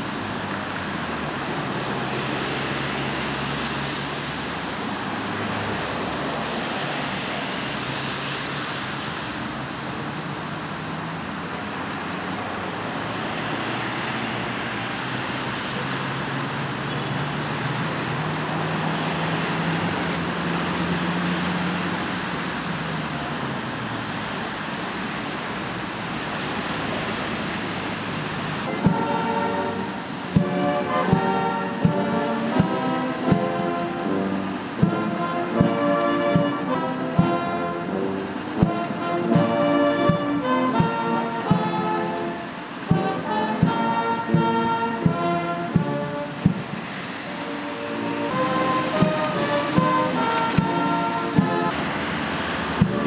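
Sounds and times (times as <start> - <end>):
traffic rushing: 0.0 - 53.0
low engine hum: 26.0 - 53.0.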